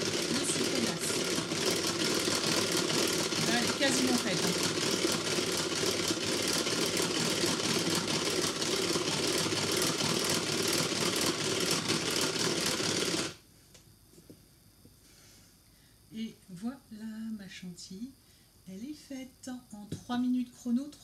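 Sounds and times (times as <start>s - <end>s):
hand-cranked beater gears whirring: 0.0s - 13.4s.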